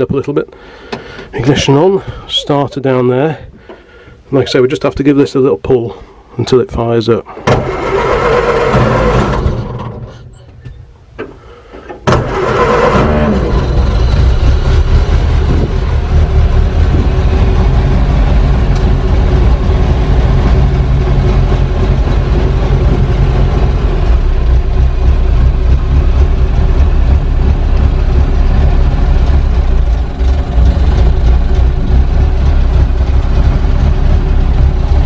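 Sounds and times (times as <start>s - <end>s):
truck engine idling: 11.8s - 35.0s.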